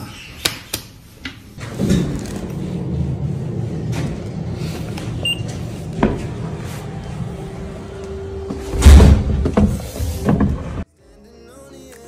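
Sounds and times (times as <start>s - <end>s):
card scanner beep: 5.2s - 5.5s.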